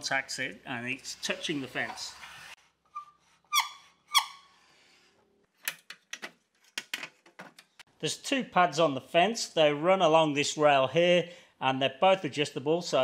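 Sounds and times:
wooden dowel squeaking on fence: 1.9s - 4.5s.

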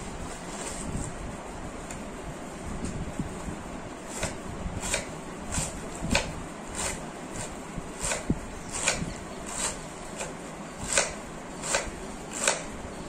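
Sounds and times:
knife slicing cabbage on board: 4.1s - 12.7s.

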